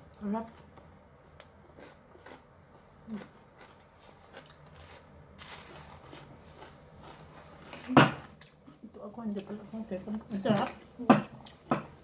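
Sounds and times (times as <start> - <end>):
person chewing food: 0.6 - 9.0.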